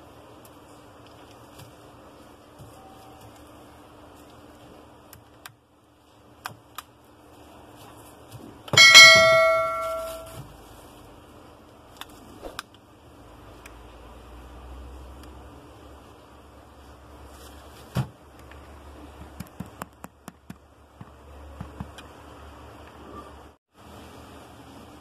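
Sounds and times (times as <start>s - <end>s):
bell-like ding: 8.8s - 10.4s.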